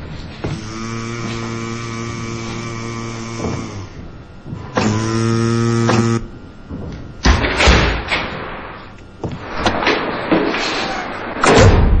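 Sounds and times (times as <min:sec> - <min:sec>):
knocks and thuds: 0:03.2 - 0:05.2, 0:05.8 - 0:08.4.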